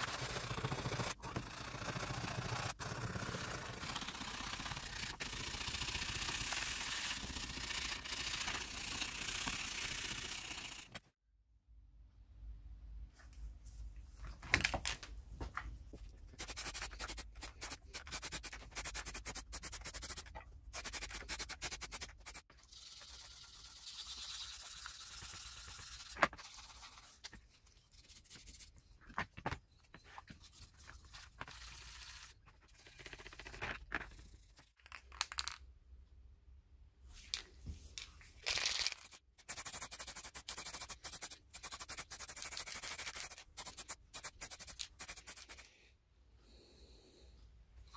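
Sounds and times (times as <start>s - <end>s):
spray paint can hissing: 5.4s - 11.0s, 16.4s - 26.8s, 38.9s - 45.6s.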